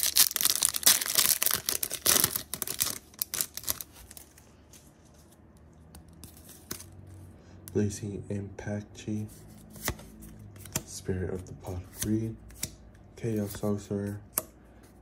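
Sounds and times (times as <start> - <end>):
foil wrapper tearing and crinkling: 0.0 - 4.3.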